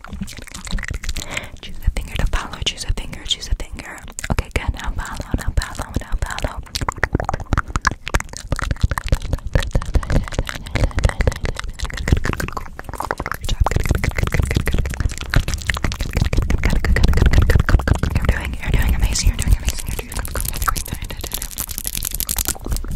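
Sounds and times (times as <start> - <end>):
wet mouth clicks and smacks: 0.0 - 22.9
low rumble of hand on microphone: 9.3 - 21.4.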